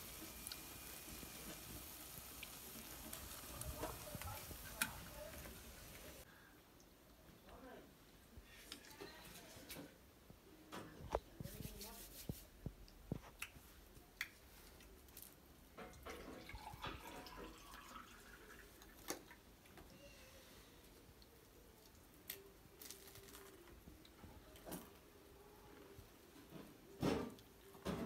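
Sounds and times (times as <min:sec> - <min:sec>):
drink pouring into a glass: 0:16.0 - 0:19.4.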